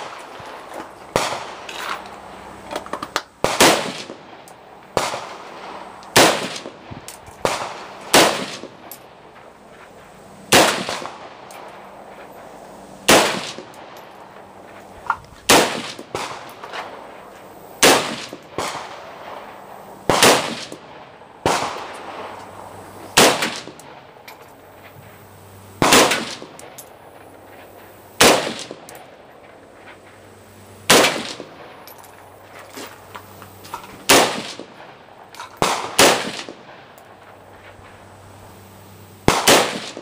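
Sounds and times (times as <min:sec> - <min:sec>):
rifle shots with echo: 0:00.0 - 0:01.7, 0:03.4 - 0:09.2, 0:10.5 - 0:12.1, 0:13.0 - 0:14.6, 0:15.4 - 0:17.2, 0:17.8 - 0:22.4, 0:23.1 - 0:24.1, 0:25.8 - 0:26.8, 0:28.2 - 0:29.2, 0:30.9 - 0:31.8, 0:34.0 - 0:37.2, 0:39.2 - 0:40.0.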